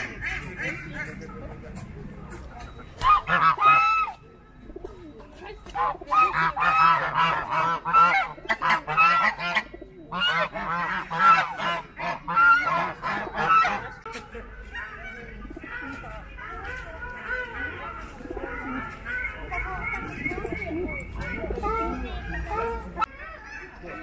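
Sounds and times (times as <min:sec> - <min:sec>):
goose honking: 0:03.0 - 0:04.1, 0:05.8 - 0:14.0.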